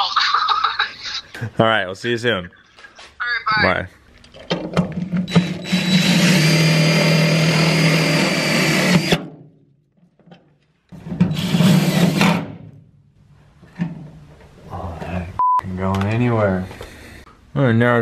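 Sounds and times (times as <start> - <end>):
cordless drill driving screw: 5.3 - 9.2, 11.3 - 12.4.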